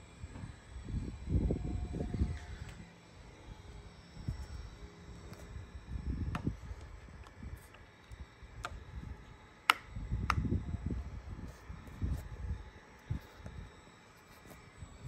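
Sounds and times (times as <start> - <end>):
sharp clicks: 9.6 - 10.5.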